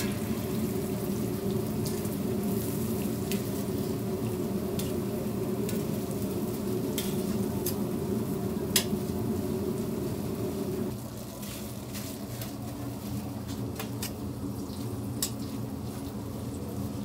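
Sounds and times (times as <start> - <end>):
food sizzling in oil: 0.0 - 12.2.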